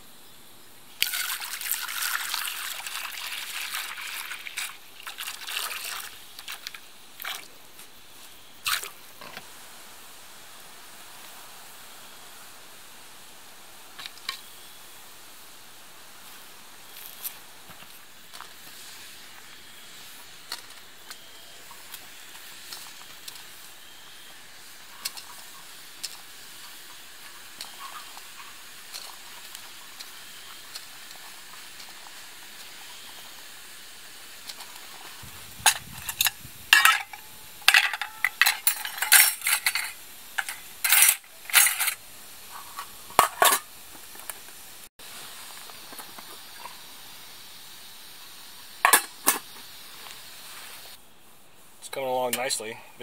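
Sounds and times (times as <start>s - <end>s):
water boiling in a pan: 0.9s - 52.7s
metal cookware clanking: 35.7s - 42.0s, 42.8s - 43.7s, 48.8s - 49.4s.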